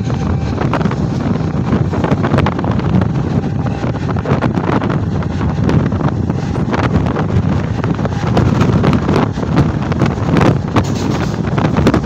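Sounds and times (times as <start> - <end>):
train rumble: 0.0 - 12.0
wind on microphone: 0.0 - 12.0
wheels clicking on rails: 5.4 - 12.0.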